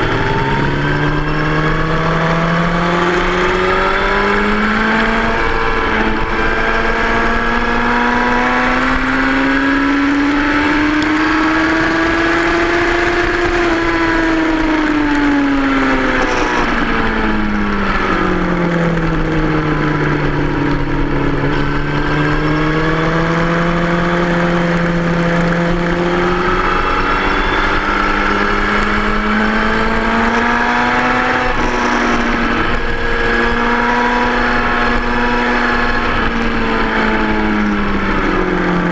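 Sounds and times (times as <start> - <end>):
motorcycle engine running hard: 0.0 - 38.9.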